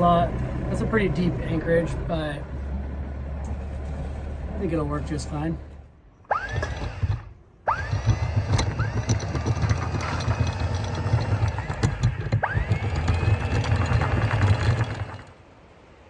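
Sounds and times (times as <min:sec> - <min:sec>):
windlass rumble and whine: 0:00.0 - 0:16.0
anchor chain rattling: 0:06.3 - 0:15.3.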